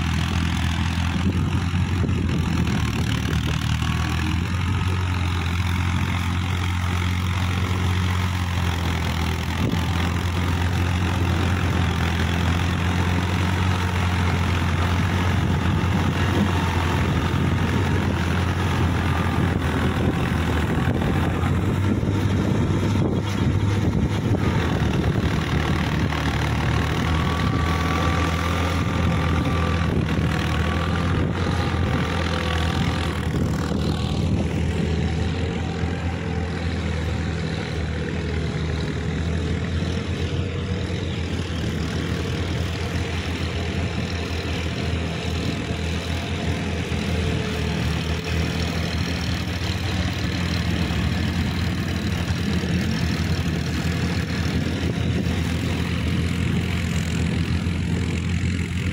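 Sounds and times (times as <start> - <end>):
diesel tractor engine running: 0.0 - 58.9.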